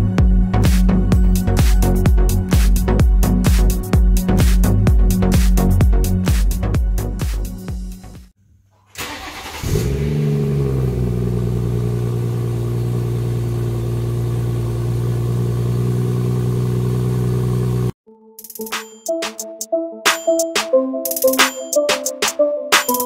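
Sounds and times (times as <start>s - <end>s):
engine starter: 8.8s - 11.2s
car engine starting and idling: 8.9s - 18.0s.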